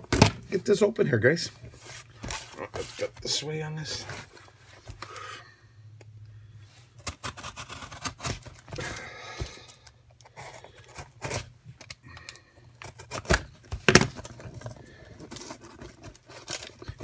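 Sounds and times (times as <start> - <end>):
cardboard rustling: 1.5 - 5.0, 12.8 - 17.0.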